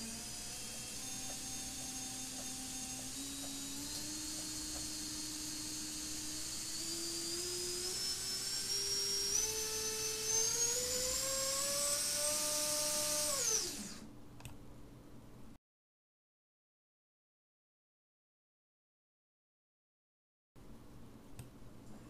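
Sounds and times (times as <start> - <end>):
drone motor whining: 0.0 - 14.1.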